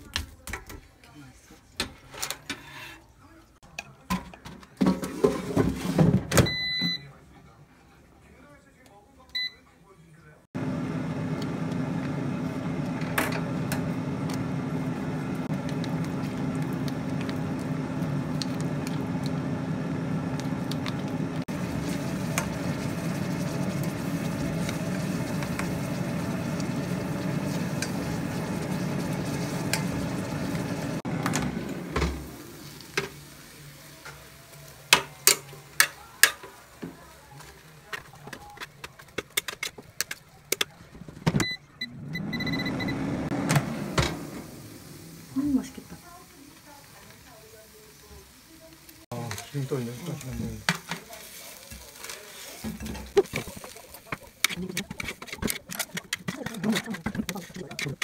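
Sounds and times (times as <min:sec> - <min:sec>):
food simmering in a saucepan: 0:13.6 - 0:31.0
wooden spoon stirring: 0:15.5 - 0:31.0, 0:49.1 - 0:58.0.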